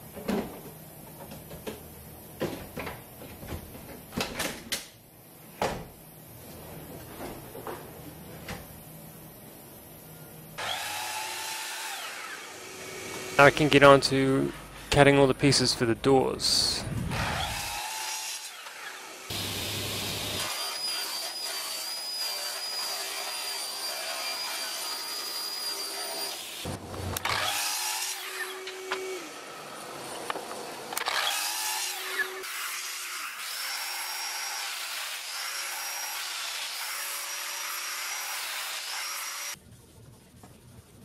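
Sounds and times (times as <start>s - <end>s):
mitre saw cutting: 10.6s - 13.9s, 17.1s - 29.7s, 31.0s - 39.6s
dust extraction running: 18.6s - 20.7s.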